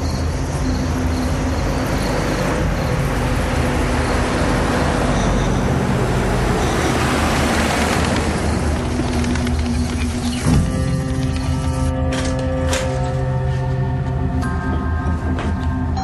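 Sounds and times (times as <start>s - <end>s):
car approaching: 0.0s - 12.0s.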